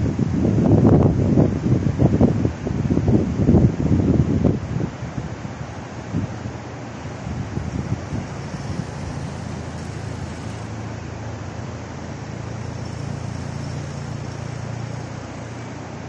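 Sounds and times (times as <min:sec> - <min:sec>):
steady outdoor noise: 0:00.0 - 0:16.0
wind buffeting microphone: 0:00.0 - 0:16.0
passing vehicle rumble: 0:03.8 - 0:16.0.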